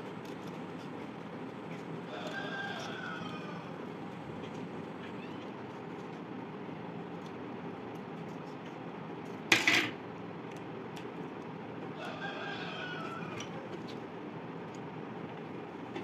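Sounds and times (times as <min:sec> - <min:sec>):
steady low hum: 0:00.0 - 0:16.0
rooster crowing: 0:02.0 - 0:04.1, 0:11.9 - 0:13.7.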